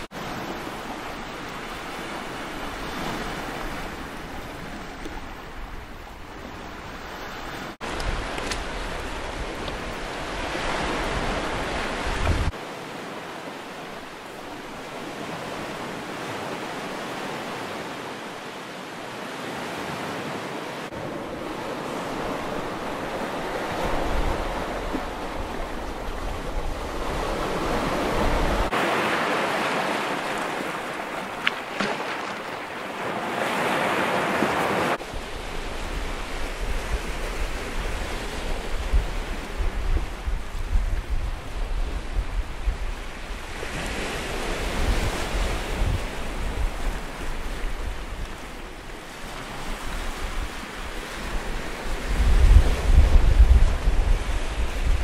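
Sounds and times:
wind buffeting microphone: 7.8s - 12.6s, 20.9s - 28.8s, 34.9s - 55.0s
waves breaking on pebbly shore: 19.0s - 42.2s.

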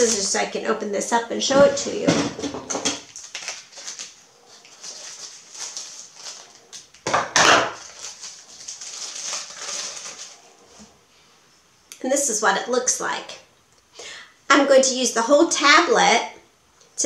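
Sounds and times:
foil wrapper crinkling: 0.0s - 0.6s, 2.7s - 10.9s.

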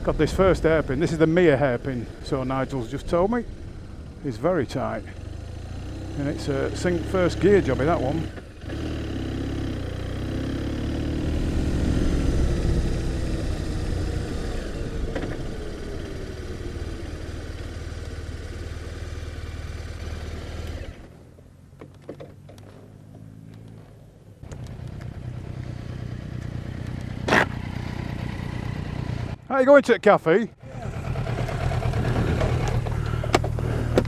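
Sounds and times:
motorcycle engine revving: 0.0s - 29.5s, 30.6s - 34.0s
clicks: 21.8s - 25.1s.

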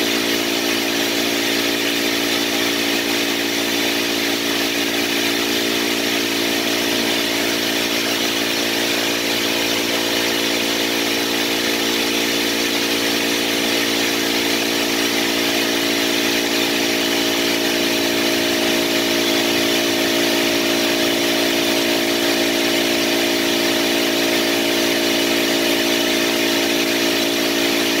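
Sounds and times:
machine hum: 0.0s - 28.0s.

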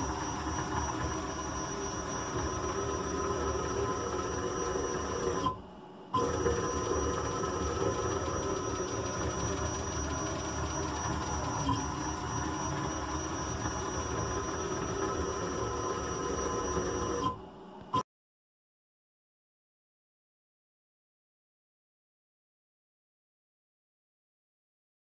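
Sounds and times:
cnc router whine: 0.0s - 18.0s
electrical hum: 0.0s - 18.0s.

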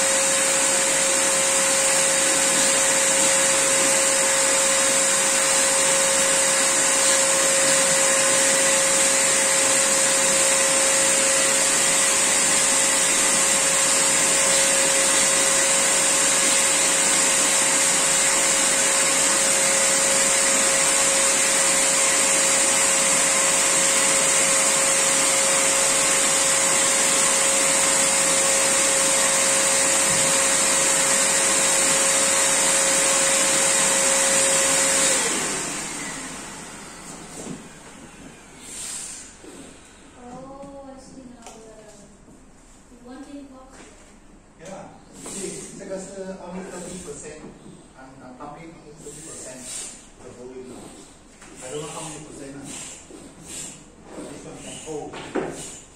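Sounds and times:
electric air pump running: 0.0s - 40.9s, 45.1s - 47.6s, 48.4s - 55.9s.

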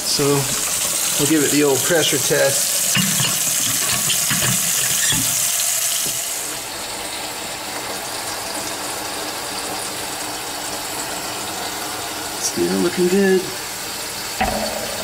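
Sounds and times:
faucet water running into sink: 0.0s - 15.0s
knocks at drain: 14.4s - 15.0s.

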